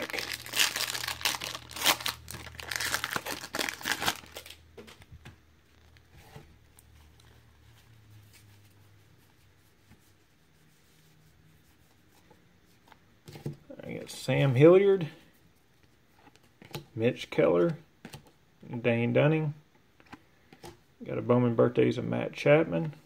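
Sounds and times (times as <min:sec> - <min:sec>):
foil wrapper crinkling: 0:00.0 - 0:04.6
soft handling of cards: 0:00.0 - 0:18.8, 0:19.8 - 0:20.9.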